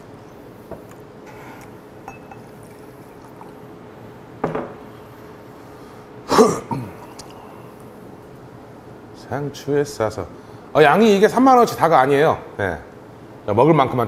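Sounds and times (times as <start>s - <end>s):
liquid pouring into a glass: 2.1s - 3.6s.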